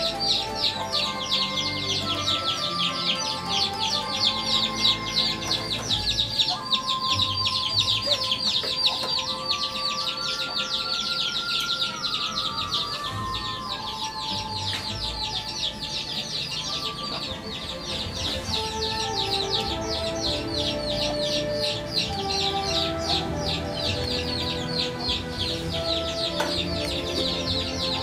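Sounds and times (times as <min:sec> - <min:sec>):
fast high-pitched chirping: 0:00.0 - 0:28.0.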